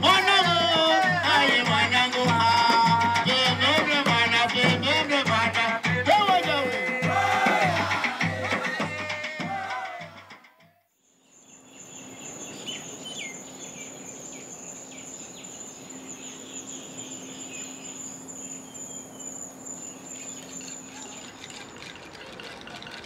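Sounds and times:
insect trill: 0.0s - 5.3s, 11.0s - 23.0s
drum music: 0.0s - 10.8s
birds chirping: 11.0s - 23.0s.

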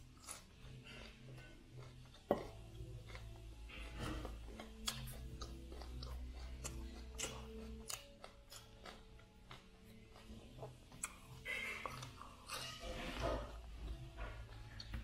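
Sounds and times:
chewing raw vegetable crunches: 0.0s - 15.0s.

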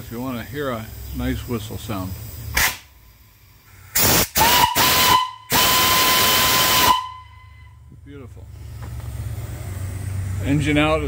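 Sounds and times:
steam hissing: 0.0s - 7.6s
steam whistle blasts: 4.0s - 7.8s.

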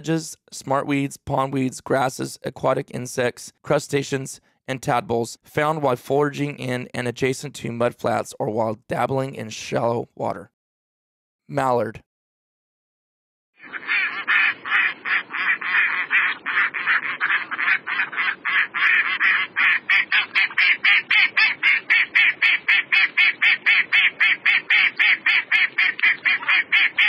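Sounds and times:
duck quacking rapidly: 13.6s - 27.0s.

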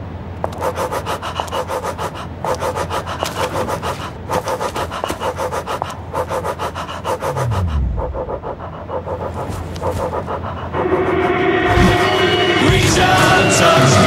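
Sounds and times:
steady low drone: 6.6s - 14.0s.

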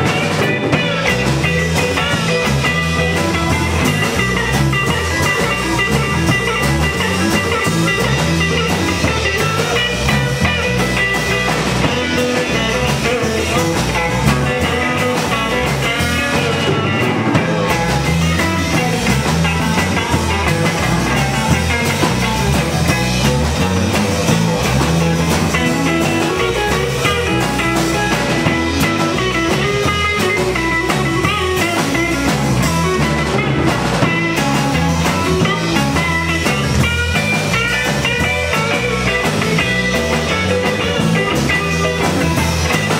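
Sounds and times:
drum kit: 0.0s - 42.9s
electric bass: 0.0s - 42.9s
electric guitar: 0.0s - 42.9s.

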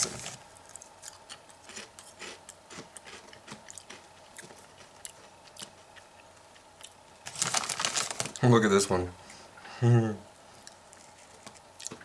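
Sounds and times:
potato chips crunching: 0.0s - 8.4s.

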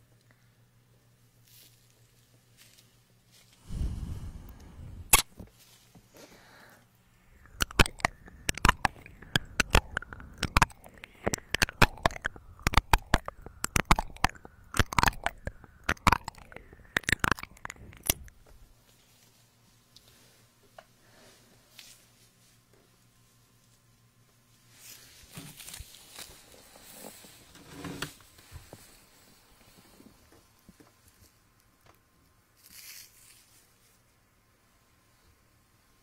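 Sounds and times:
microphone handling rumble: 3.6s - 5.2s
wet mouth licking sounds: 3.6s - 5.3s, 7.3s - 18.4s.

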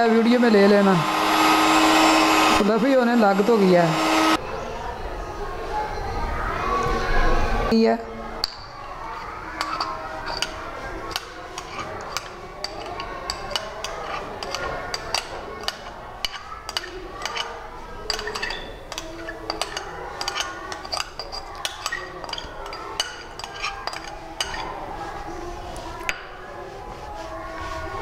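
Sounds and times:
spoon scraping glass bowl: 9.1s - 28.0s.

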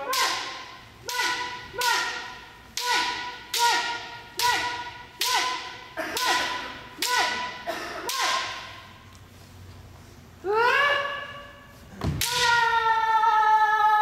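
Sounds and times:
person shouting: 10.4s - 11.6s, 12.2s - 14.0s
bamboo sword strikes: 12.0s - 12.6s.

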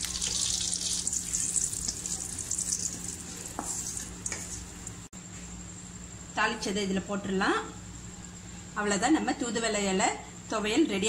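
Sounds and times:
oil popping: 0.0s - 5.0s
food sizzling in hot oil: 0.0s - 5.1s.

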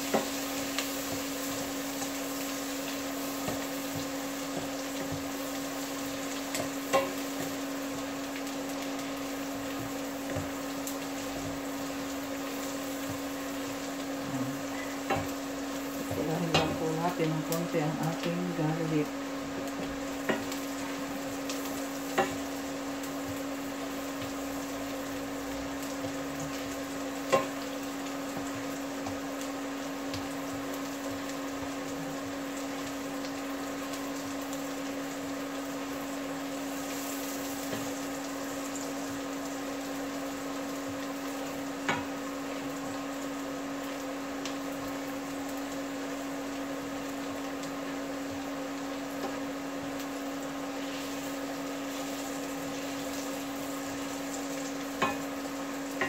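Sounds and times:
garlic sizzling in a frying pan: 0.0s - 56.0s
steady hum: 0.0s - 56.0s
utensil tapping a pan: 22.1s - 22.5s, 55.0s - 55.3s.

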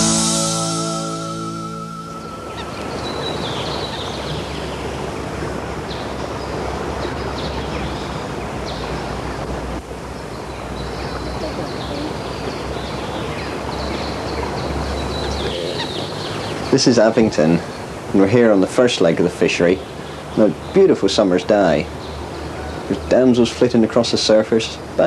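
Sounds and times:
river rushing: 0.0s - 10.1s
small birds chirping: 0.0s - 24.4s.

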